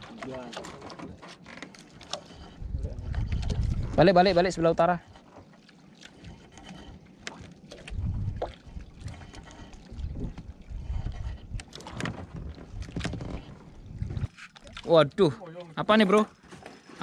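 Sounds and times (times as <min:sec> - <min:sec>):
water moving around boat: 0:00.0 - 0:17.0
wind buffeting microphone: 0:02.3 - 0:04.9, 0:07.8 - 0:14.3.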